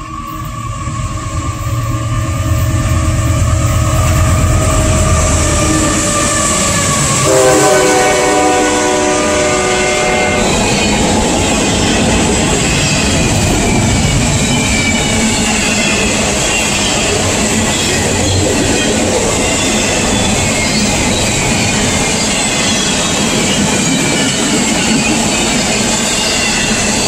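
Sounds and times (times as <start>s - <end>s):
locomotive engine rumbling: 0.8s - 27.0s
train air horn: 5.2s - 10.8s.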